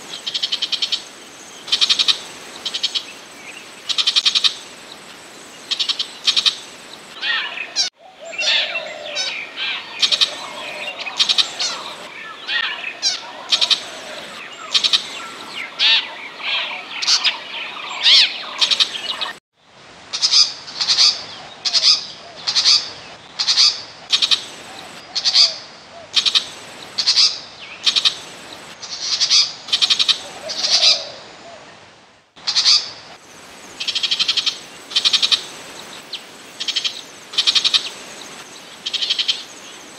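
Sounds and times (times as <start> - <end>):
shrike calling: 5.7 - 19.4, 23.4 - 31.6.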